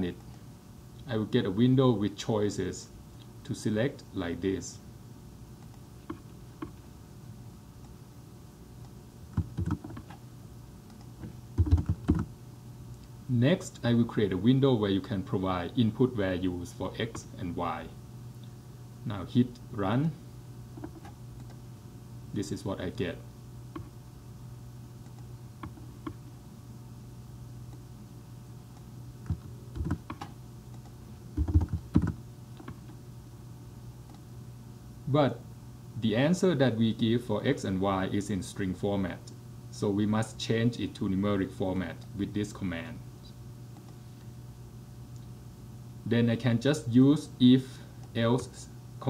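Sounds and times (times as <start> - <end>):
low steady hum: 0.0 - 49.0
computer keyboard clicks: 9.3 - 10.2, 10.9 - 12.3, 29.3 - 32.8.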